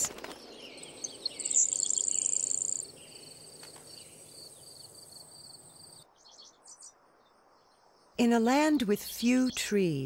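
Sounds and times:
insects trilling: 0.8s - 6.0s
high insect chirp: 0.8s - 6.1s.

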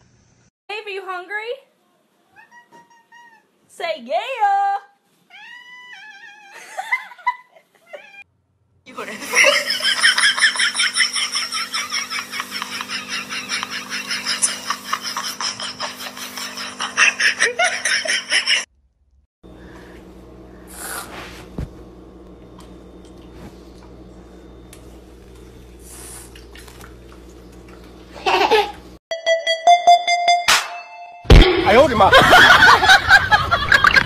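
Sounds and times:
person laughing: 6.5s - 8.2s, 9.2s - 18.6s, 28.2s - 28.8s, 31.5s - 34.0s.

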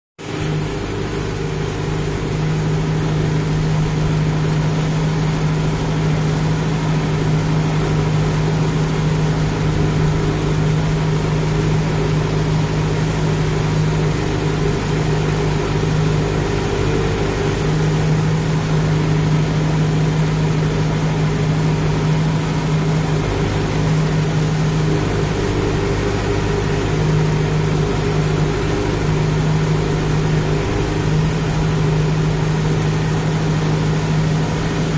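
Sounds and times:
tractor diesel engine running: 0.2s - 34.9s.

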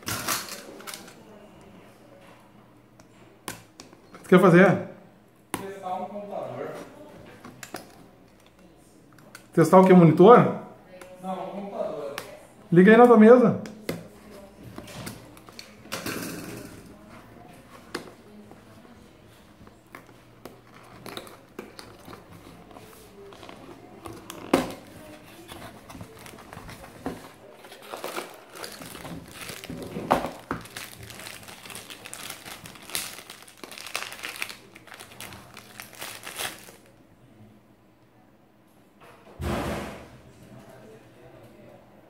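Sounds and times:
plastic bag crinkling: 20.5s - 36.9s.

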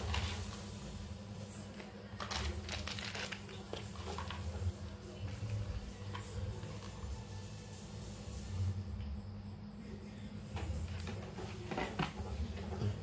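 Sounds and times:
plastic bag rustling: 2.2s - 4.6s.

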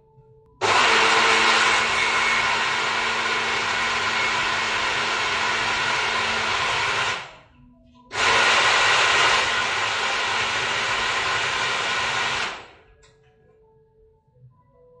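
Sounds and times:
blender motor running: 0.6s - 7.5s, 8.1s - 12.8s.

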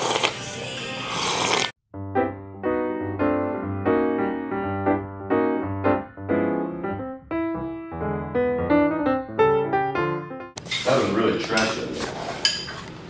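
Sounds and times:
keyboard chords over bass: 2.0s - 10.6s.

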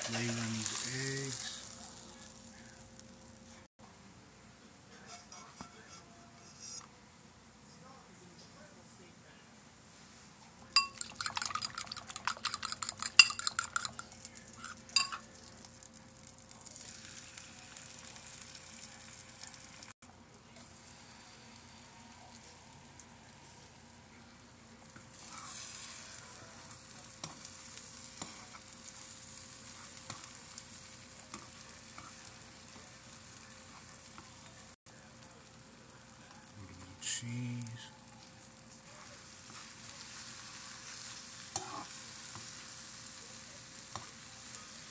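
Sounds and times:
food sizzling in a frying pan: 0.0s - 3.7s, 10.7s - 44.9s
utensil clicking against bowl: 11.0s - 14.0s.

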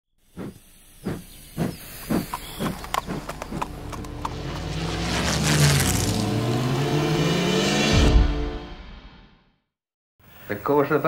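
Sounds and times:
rhythmic hissing puffs: 0.2s - 3.8s.

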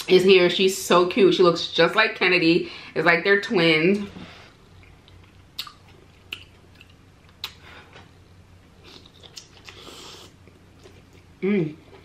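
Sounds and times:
person chewing with wet smacks: 4.8s - 7.6s, 8.8s - 12.0s.

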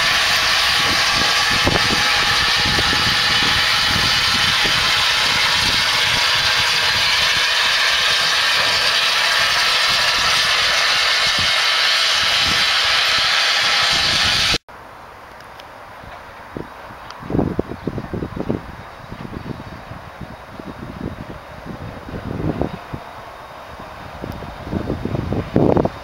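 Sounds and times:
low rumbles: 0.0s - 14.6s
steam locomotive hissing: 0.0s - 14.6s.

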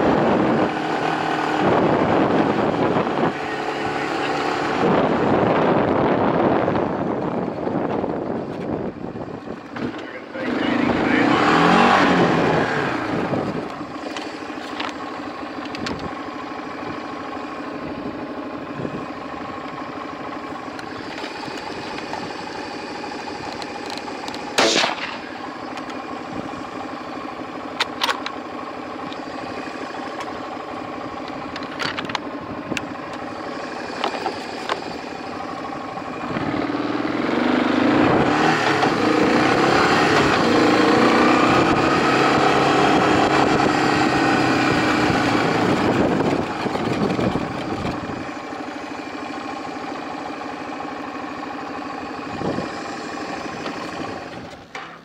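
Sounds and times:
off-road vehicle engine running: 0.0s - 55.0s
sharp crack: 24.4s - 25.8s.

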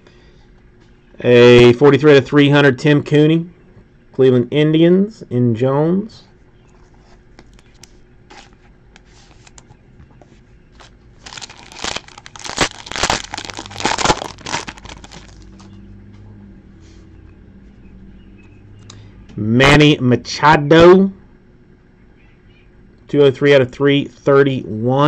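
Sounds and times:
foil wrapper crinkling and tearing: 10.8s - 15.5s.

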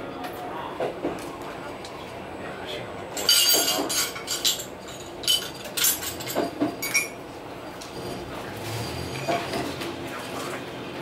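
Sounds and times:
train running noise: 0.0s - 11.0s
glasses and tableware clinking: 3.2s - 7.2s, 8.0s - 9.8s.

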